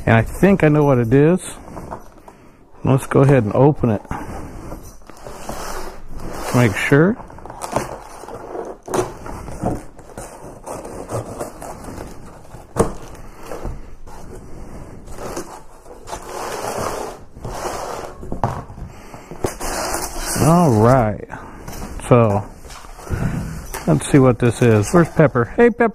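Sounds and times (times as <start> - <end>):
cardboard crackling and rubbing: 3.1 - 18.6, 19.3 - 21.1, 21.7 - 25.7.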